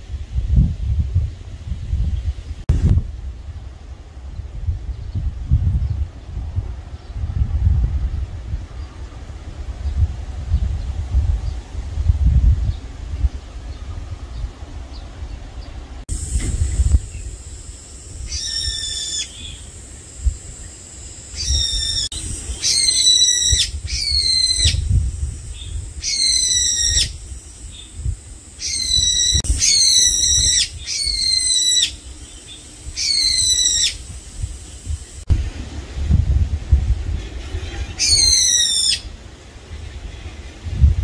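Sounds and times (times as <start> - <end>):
bird whistling calls: 18.3 - 19.7, 21.3 - 34.1, 37.8 - 39.1.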